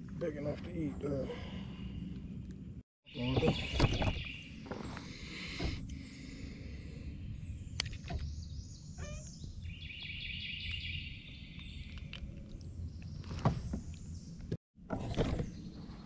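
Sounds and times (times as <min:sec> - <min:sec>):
chirps: 0:03.1 - 0:06.5, 0:07.1 - 0:14.4.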